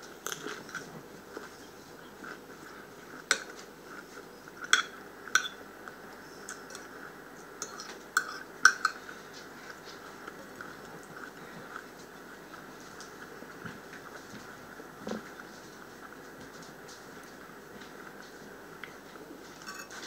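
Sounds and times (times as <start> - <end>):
fork clinking on ceramic plate: 4.7 - 5.6, 19.6 - 20.0.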